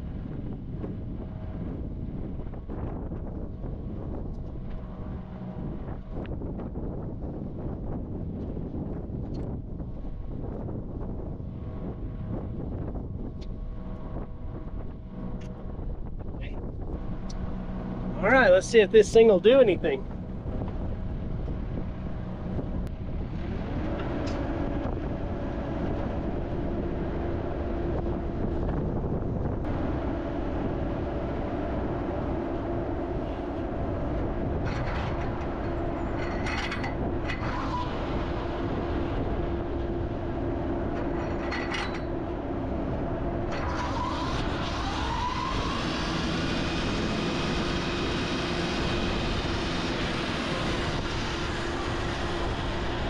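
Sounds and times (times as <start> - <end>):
excavator engine and hydraulics: 0.0 - 53.0
flail mower whine: 11.7 - 53.0.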